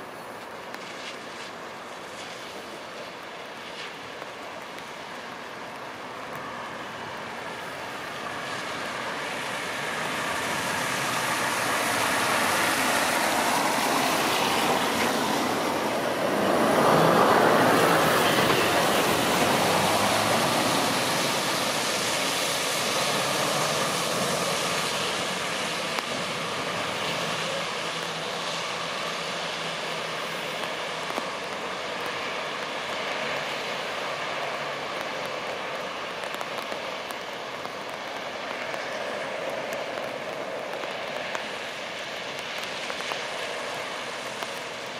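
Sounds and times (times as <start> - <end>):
road traffic rush: 0.0 - 44.9
vehicle passing: 8.3 - 30.2.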